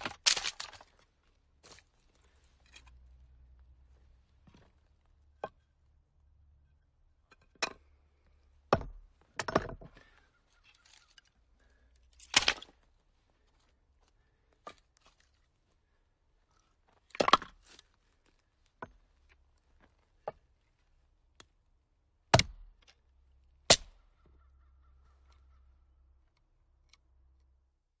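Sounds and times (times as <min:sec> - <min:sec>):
axe chopping firewood: 0:08.7 - 0:09.9, 0:12.2 - 0:12.7, 0:17.1 - 0:17.6, 0:22.3 - 0:22.9, 0:23.7 - 0:24.0.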